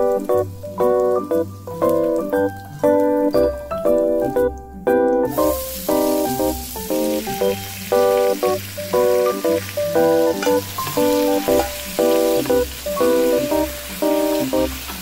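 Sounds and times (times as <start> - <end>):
background music of repeated chords: 0.0 - 15.0
vegetables sizzling in hot oil: 5.3 - 15.0.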